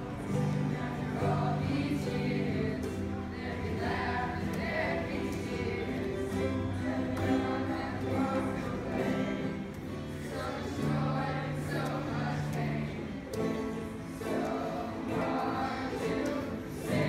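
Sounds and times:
acoustic guitar: 0.0s - 17.0s
choir singing: 0.0s - 17.0s
strummed ukuleles: 0.0s - 17.0s.

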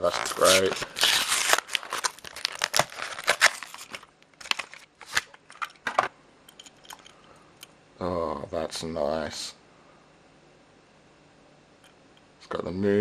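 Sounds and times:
plastic packaging crinkling and tearing: 0.0s - 5.6s.

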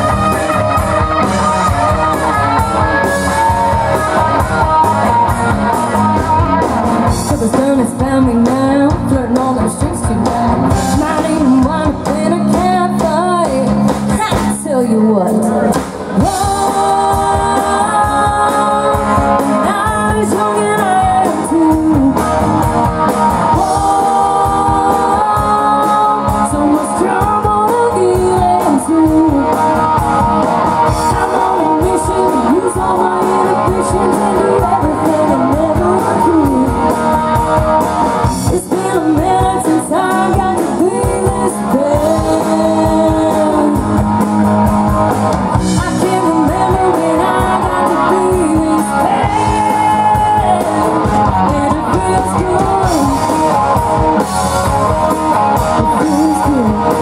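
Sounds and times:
drum kit beat: 0.0s - 57.0s
electric guitar: 0.0s - 57.0s
woman singing into a microphone: 7.1s - 22.3s, 23.5s - 29.6s, 30.9s - 36.9s, 38.3s - 44.0s, 45.6s - 53.4s, 55.8s - 57.0s.

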